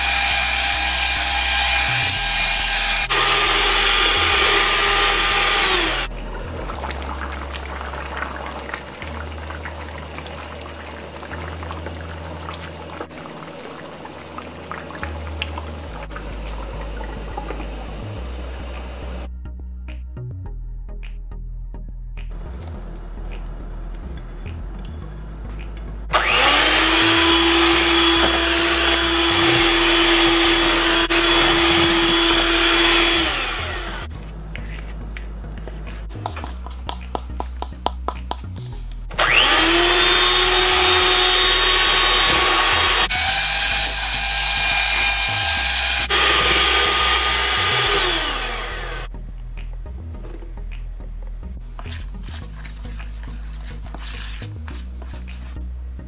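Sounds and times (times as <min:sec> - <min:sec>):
electric hand mixer whining: 0:00.0 - 0:06.1, 0:26.1 - 0:34.1, 0:39.2 - 0:49.1.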